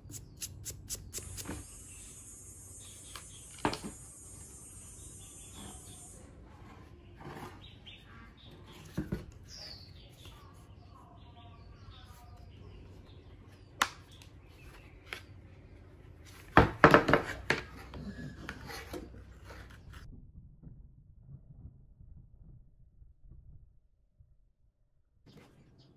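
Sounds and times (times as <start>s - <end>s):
faint birds chirping: 0.0s - 16.4s.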